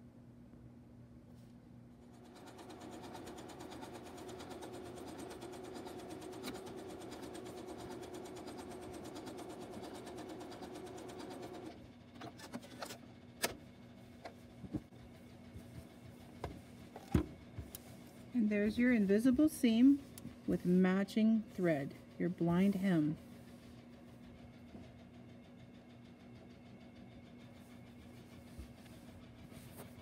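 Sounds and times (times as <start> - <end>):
sewing machine running: 2.0 - 12.8.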